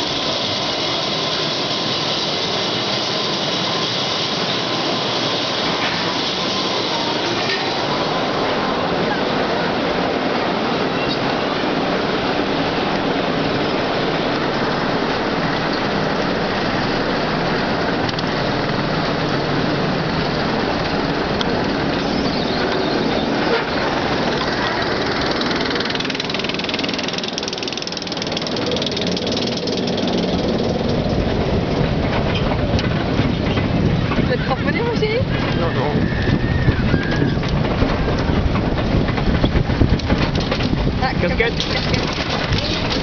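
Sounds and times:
rumble of wheels and wind: 0:00.0 - 0:43.0
chain lift mechanical clatter: 0:18.5 - 0:35.8, 0:37.2 - 0:43.0.

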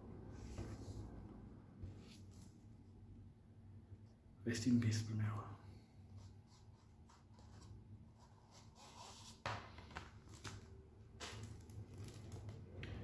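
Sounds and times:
paper and card rustling: 0:07.1 - 0:12.7.

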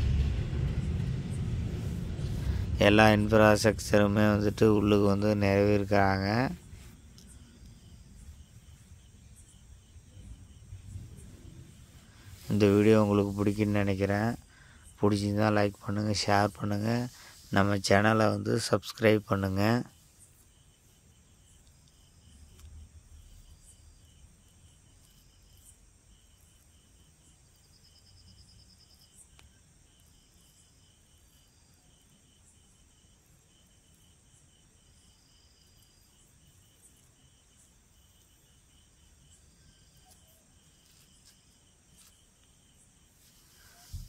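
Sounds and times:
low background rumble: 0:00.0 - 0:26.6
higher insect trill: 0:00.0 - 0:44.0
insects chirping: 0:00.0 - 0:44.0.

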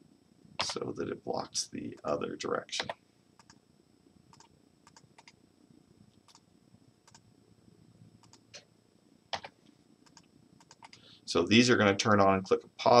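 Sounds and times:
faint computer mouse clicks: 0:02.8 - 0:03.6, 0:04.3 - 0:05.4, 0:08.2 - 0:08.7, 0:09.4 - 0:11.0.

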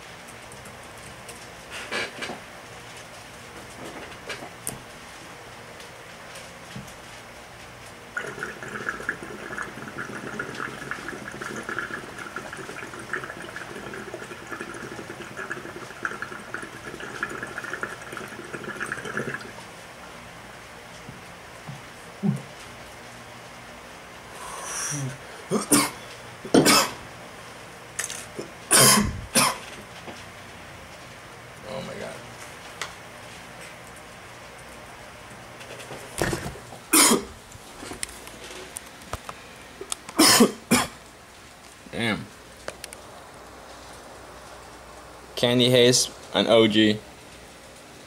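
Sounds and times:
water bubbling in glass pipe: 0:08.2 - 0:19.6
man breathing out smoke: 0:24.3 - 0:25.1
man coughing hard: 0:25.5 - 0:27.0, 0:28.7 - 0:29.6, 0:36.9 - 0:37.3, 0:40.2 - 0:41.0.

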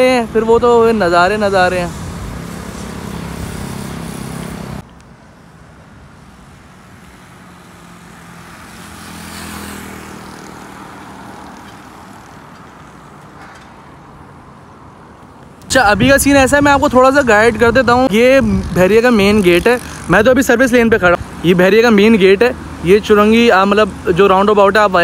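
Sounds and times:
motor vehicle passing: 0:00.0 - 0:25.0
rush of noise: 0:15.6 - 0:25.0.

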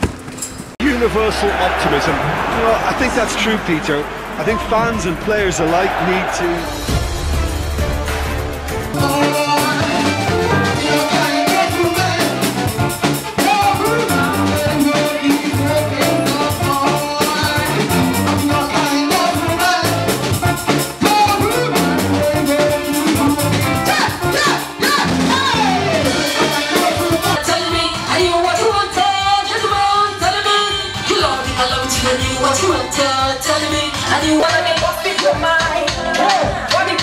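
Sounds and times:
backing music with drum beat: 0:02.4 - 0:37.0
woman singing into a microphone: 0:25.4 - 0:37.0.

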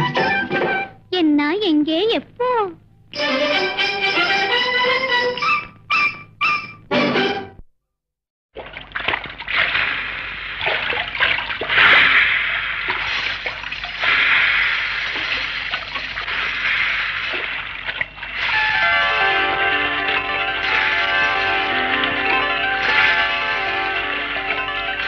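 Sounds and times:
film song: 0:03.1 - 0:07.6, 0:18.4 - 0:25.0
rushing splashing water effect: 0:08.6 - 0:21.6
ringing bell-like tones: 0:18.6 - 0:25.0.

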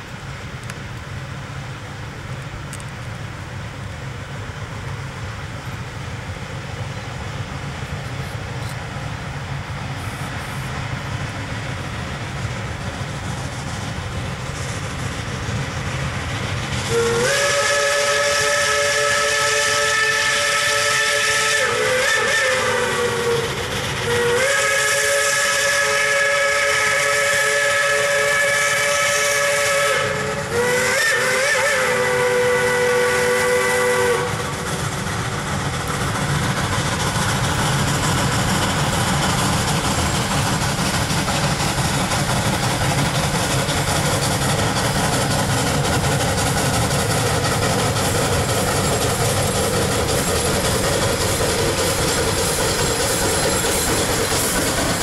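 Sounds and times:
locomotive rumble: 0:00.0 - 0:55.0
steam locomotive whistle: 0:16.8 - 0:34.7.

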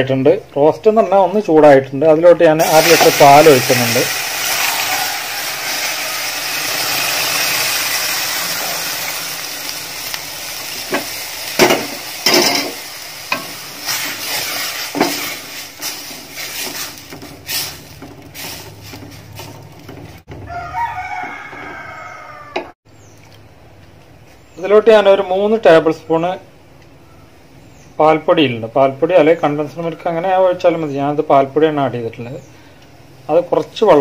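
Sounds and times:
milk sizzling in hot pan: 0:02.6 - 0:20.2
rooster crowing: 0:04.3 - 0:09.4, 0:20.4 - 0:22.8
spatula scraping a pan: 0:10.6 - 0:20.3.

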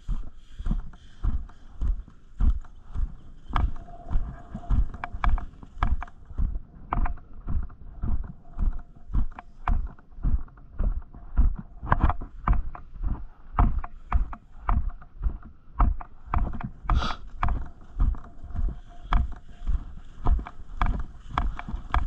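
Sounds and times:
footsteps on grass: 0:00.0 - 0:06.7, 0:16.7 - 0:22.0.

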